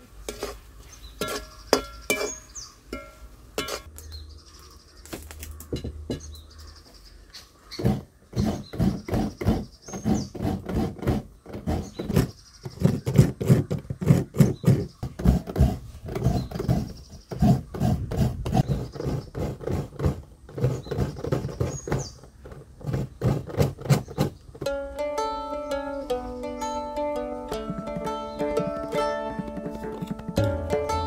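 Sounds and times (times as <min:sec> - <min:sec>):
coconut rasping on a grater: 0:07.8 - 0:22.0.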